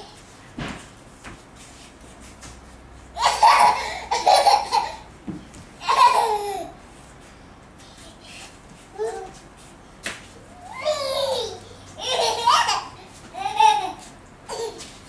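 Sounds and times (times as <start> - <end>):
toddler laughing: 3.2 - 5.1, 5.8 - 6.8, 10.6 - 15.0.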